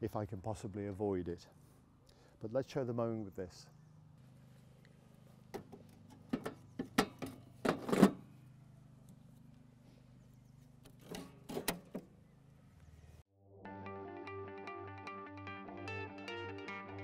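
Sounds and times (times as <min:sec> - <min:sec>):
metal clicks and clunks: 0:10.8 - 0:12.1
guitar music: 0:13.6 - 0:17.0.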